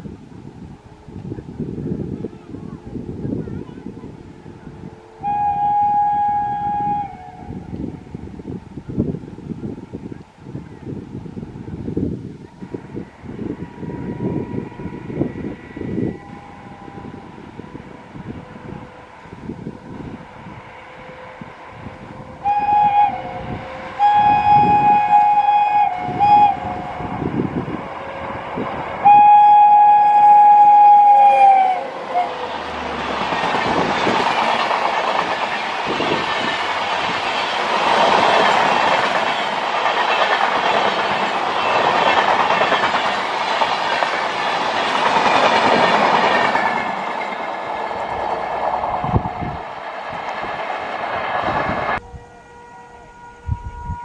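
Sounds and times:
locomotive air horn blasts: 0:04.4 - 0:08.1, 0:12.5 - 0:32.9, 0:52.0 - 0:54.0
train wheels clattering past: 0:29.1 - 0:52.0.

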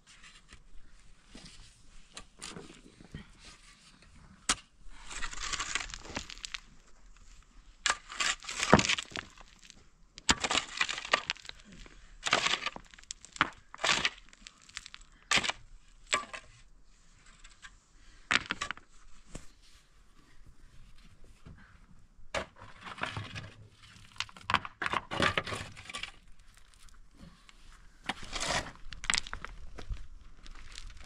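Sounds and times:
dirt and stones rattling: 0:04.5 - 0:16.6, 0:17.2 - 0:19.6, 0:22.3 - 0:31.0.

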